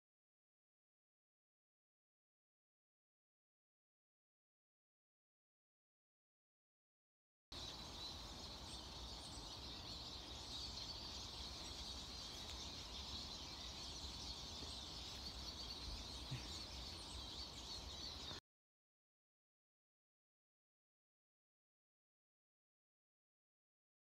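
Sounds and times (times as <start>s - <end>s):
songbirds singing: 7.5s - 18.4s.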